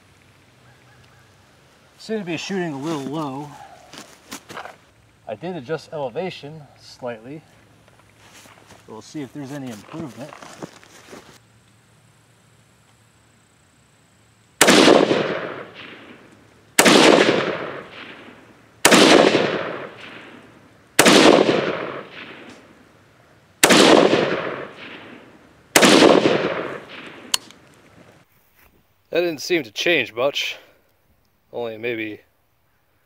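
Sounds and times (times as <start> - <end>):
rifle shots with long echo: 14.6 - 23.0, 23.6 - 27.6.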